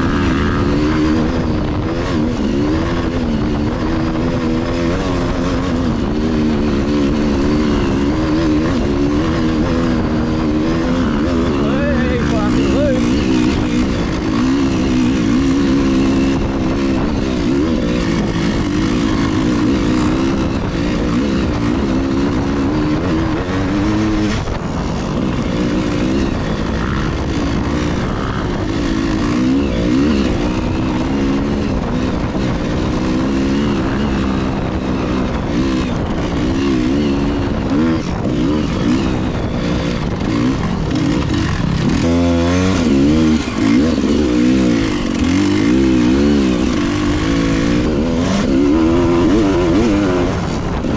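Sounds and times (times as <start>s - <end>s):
dirt bike engine revving: 0.0s - 50.9s.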